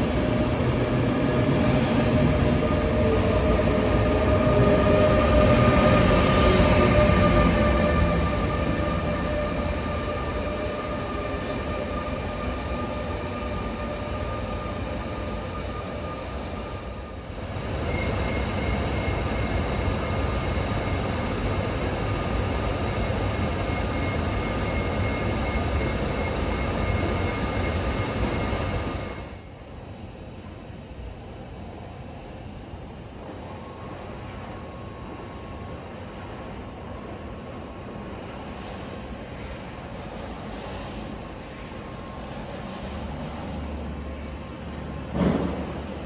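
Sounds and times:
train whining tones: 0.0s - 29.4s
train rolling in: 0.0s - 30.6s, 32.5s - 46.0s
locomotive high whine: 0.0s - 46.0s.

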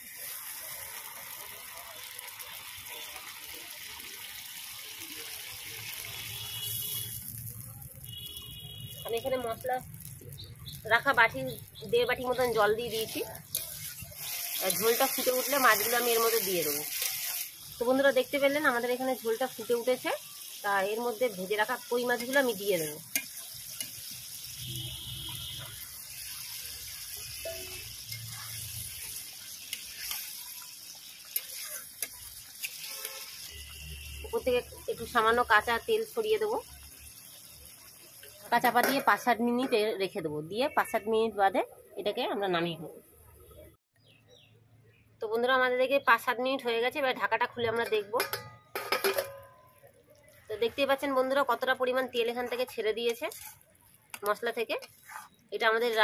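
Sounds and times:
gravy bubbling and hissing: 0.0s - 34.3s
water poured into hot oil: 0.0s - 39.0s
oil sizzling: 0.0s - 40.0s, 47.1s - 56.0s.

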